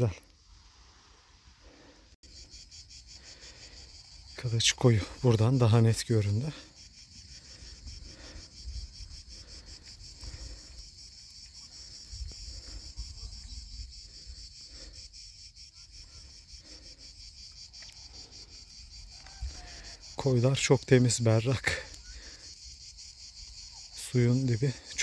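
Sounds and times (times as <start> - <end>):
insects shrilling: 0.0 - 25.0.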